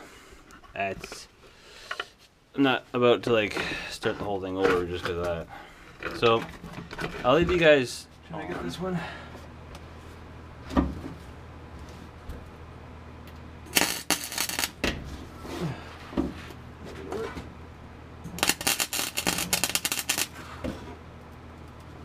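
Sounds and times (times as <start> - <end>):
welder crackling: 13.7 - 14.9, 18.3 - 20.4.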